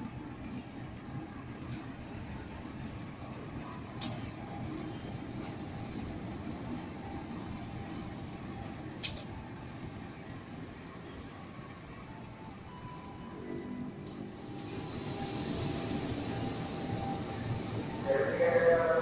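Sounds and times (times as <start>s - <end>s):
locomotive engine rumble: 13.9s - 19.0s.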